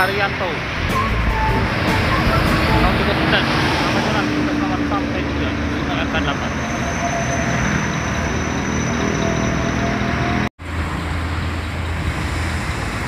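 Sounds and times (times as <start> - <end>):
bus engines droning: 0.0 - 13.0
low engine hum: 0.7 - 6.5.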